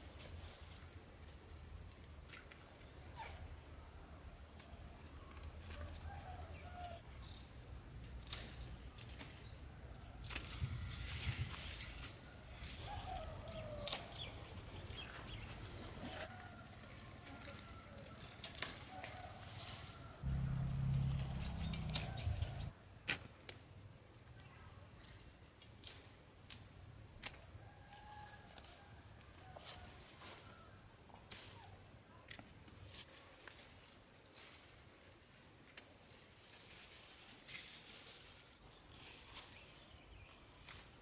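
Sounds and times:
insect drone: 0.0 - 41.0
low hum: 20.2 - 22.7.

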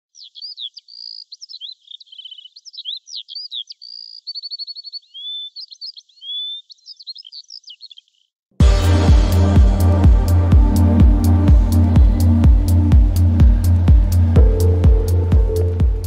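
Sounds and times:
songbird singing: 0.0 - 8.4.

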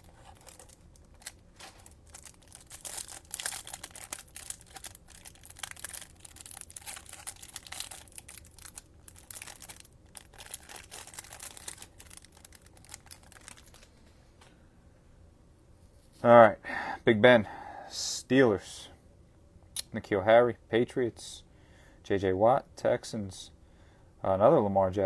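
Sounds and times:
plastic wrapper crinkling and tearing: 0.0 - 13.9.

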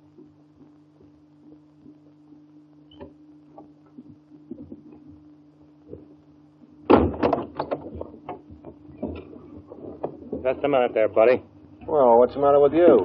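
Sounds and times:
film soundtrack hum and crackle: 0.0 - 13.0
clatter of sharp knocks: 6.9 - 10.6.

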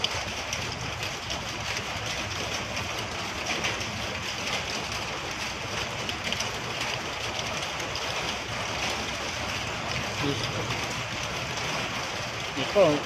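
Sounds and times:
rain and stones ticking: 0.0 - 13.0.

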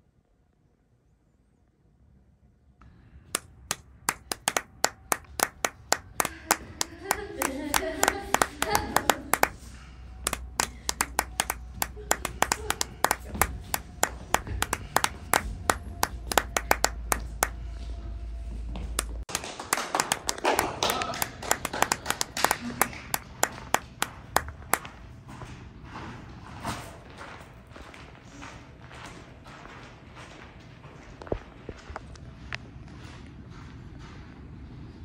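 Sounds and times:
people clapping: 3.4 - 17.6, 19.0 - 25.0.

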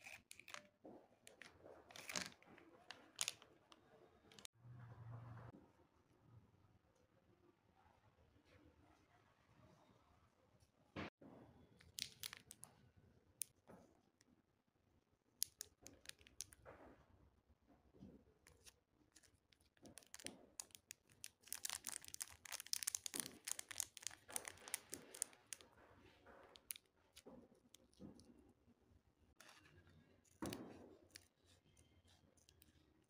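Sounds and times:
plastic candy wrappers crinkling: 0.0 - 0.6, 1.3 - 3.5, 11.9 - 12.7, 18.5 - 25.7, 26.5 - 28.0.

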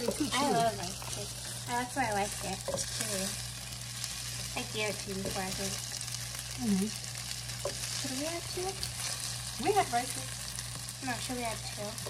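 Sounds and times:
food sizzling in frying pan: 0.0 - 12.0
wooden spatula stirring: 2.2 - 3.4.

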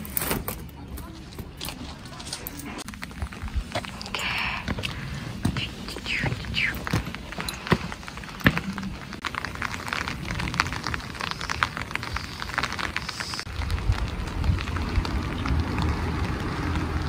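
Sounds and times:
light rain pattering: 0.7 - 17.0
low rumble: 6.1 - 17.0.

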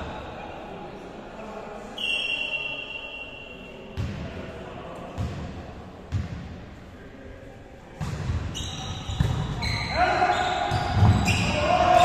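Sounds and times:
referee's whistle: 2.0 - 3.6, 8.6 - 12.0.

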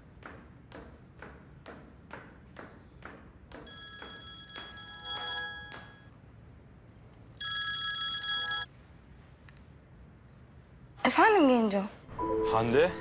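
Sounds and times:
phone ringtone: 3.6 - 6.1, 7.4 - 8.7.

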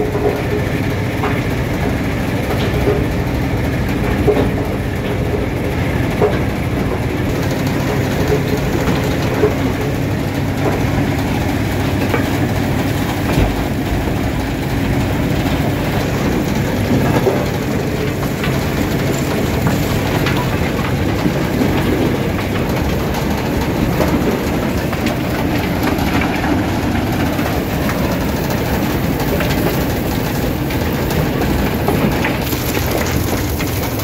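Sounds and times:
rock crusher mechanical din: 7.3 - 34.0.

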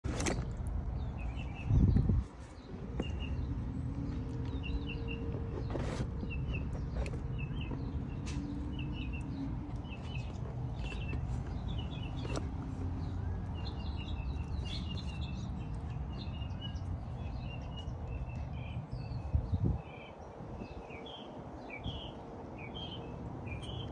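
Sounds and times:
small birds chirping: 0.1 - 23.9.

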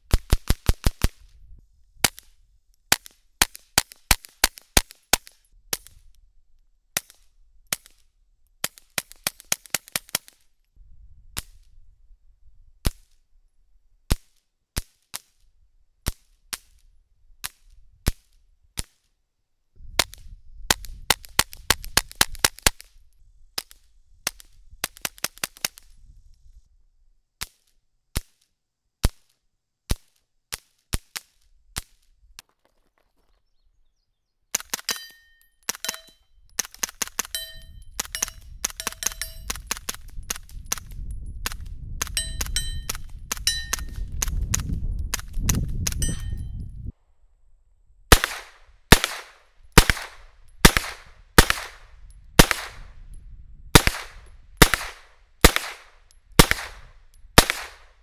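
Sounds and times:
suppressed pistol shots: 48.1 - 52.9, 53.8 - 58.0.

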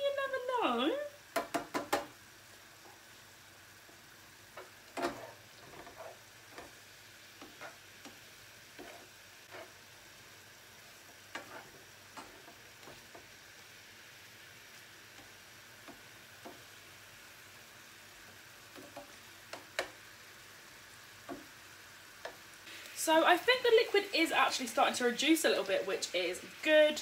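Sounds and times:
meat sizzling in a pan: 0.1 - 27.0
tongs tapping a pan: 1.3 - 2.2, 4.5 - 5.2, 18.7 - 20.0, 21.2 - 21.5.

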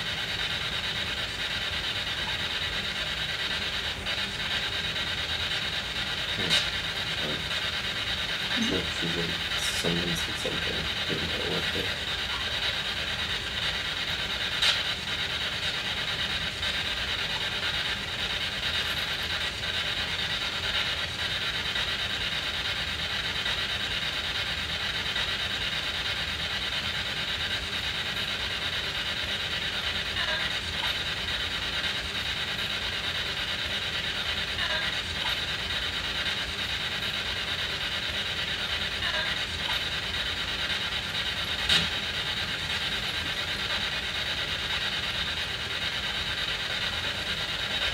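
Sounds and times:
radio static with rapid chopping: 6.2 - 7.6, 8.5 - 12.6.

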